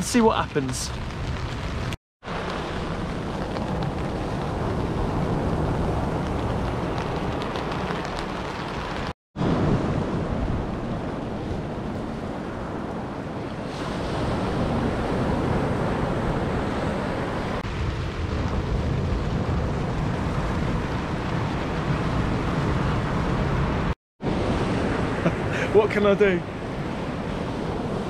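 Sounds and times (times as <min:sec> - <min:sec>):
surf breaking on a beach: 0:09.4 - 0:28.0.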